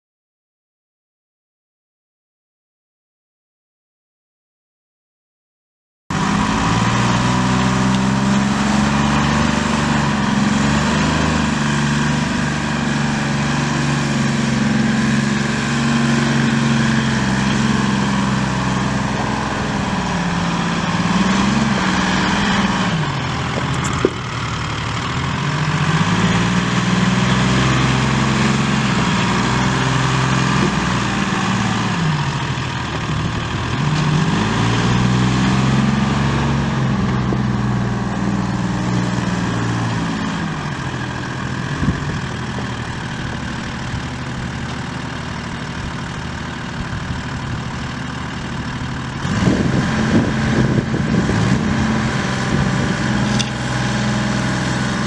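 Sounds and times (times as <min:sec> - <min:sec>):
diesel engine running: 0:06.1 - 0:55.0
sharp click: 0:53.3 - 0:53.6.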